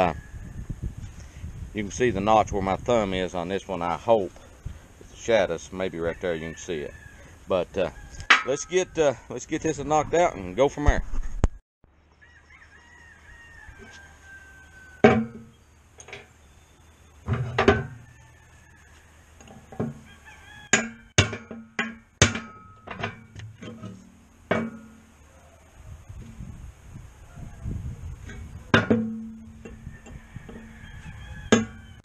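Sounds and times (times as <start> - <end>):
hammer striking steel: 20.8 - 23.2, 24.5 - 25.0.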